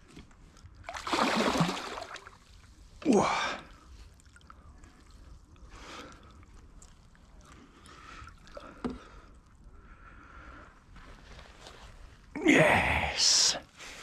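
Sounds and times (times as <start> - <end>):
water splashing and sloshing: 0.1 - 9.7.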